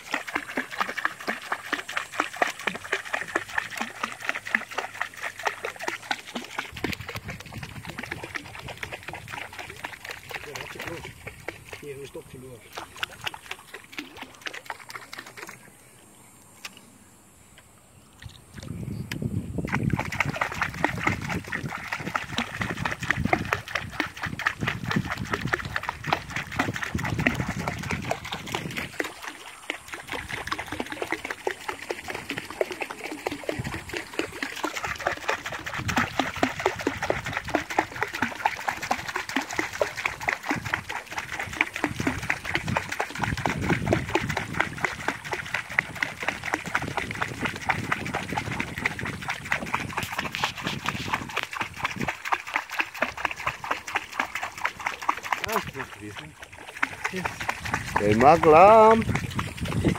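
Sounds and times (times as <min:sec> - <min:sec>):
fish splashing at water surface: 0:00.0 - 0:15.8, 0:19.7 - 0:59.9.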